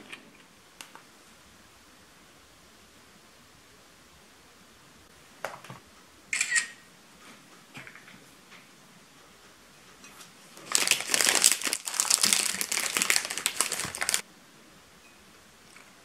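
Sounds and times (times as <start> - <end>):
plastic wrapper crinkling: 10.5 - 14.2.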